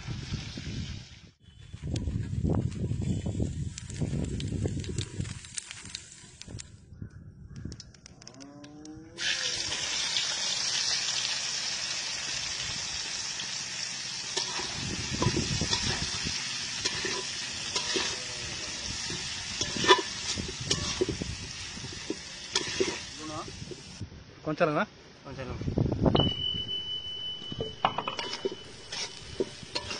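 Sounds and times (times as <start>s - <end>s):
onions sizzling in hot oil: 9.2s - 24.0s, 28.1s - 29.9s
metal spatula scraping bowl: 16.8s - 21.2s, 22.0s - 23.1s, 27.6s - 29.9s.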